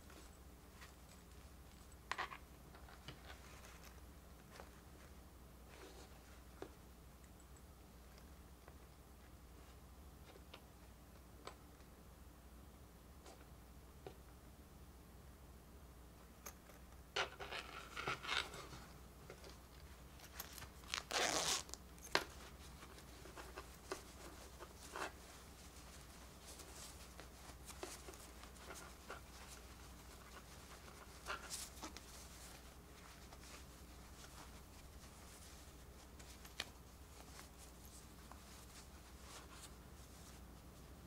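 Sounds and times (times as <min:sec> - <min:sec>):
plush fabric rustling: 0:17.8 - 0:41.0
zipper rasping: 0:20.3 - 0:21.8.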